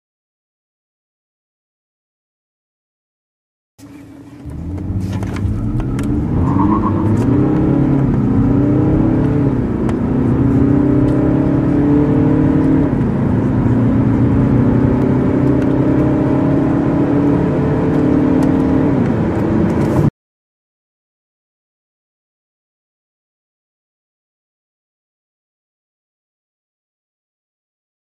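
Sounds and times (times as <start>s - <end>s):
car engine accelerating: 3.8s - 20.1s.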